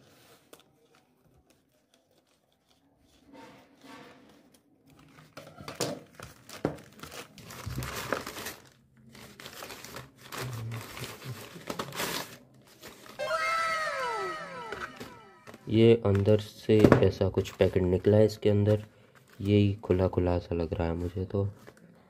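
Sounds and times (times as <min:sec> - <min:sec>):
plastic mailer crinkling: 0:06.2 - 0:16.5
falling whistle-like tone: 0:13.2 - 0:15.7.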